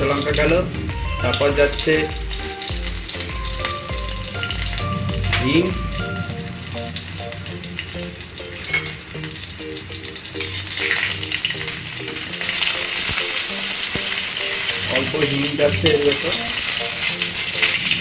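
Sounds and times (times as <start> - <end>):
background music: 0.0 - 18.0
oil sizzling with spices: 0.0 - 18.0
metal spatula stirring: 4.6 - 9.4, 10.0 - 12.8.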